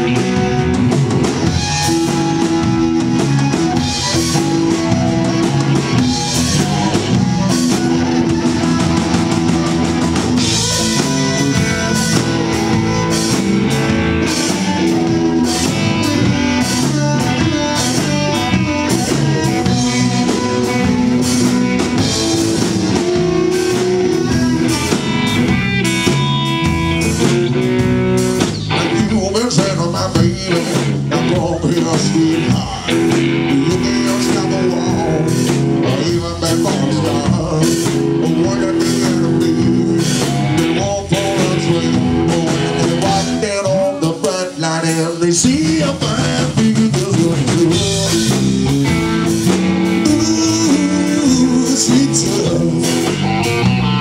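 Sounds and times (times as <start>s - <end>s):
blues harmonica held notes: 0.0s - 28.8s
electric blues band playing: 0.0s - 54.0s.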